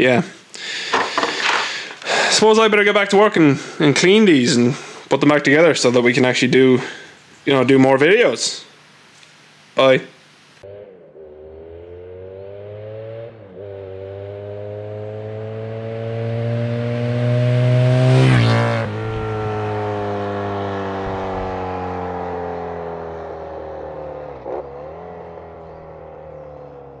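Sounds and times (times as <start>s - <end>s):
motorcycle engine accelerating past: 10.6s - 27.0s.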